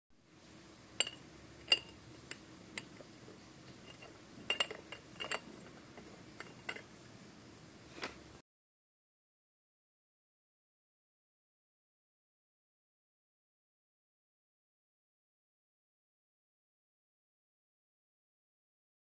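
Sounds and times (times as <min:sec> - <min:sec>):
faint room hum: 0:00.2 - 0:08.4
metal dishware clinking: 0:01.0 - 0:02.0, 0:03.8 - 0:05.6, 0:06.4 - 0:06.9.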